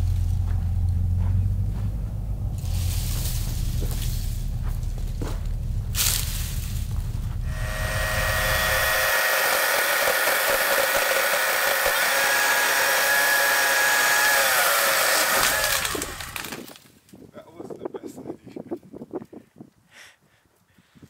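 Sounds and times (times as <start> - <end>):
electric chainsaw cutting branches: 7.5 - 16.9.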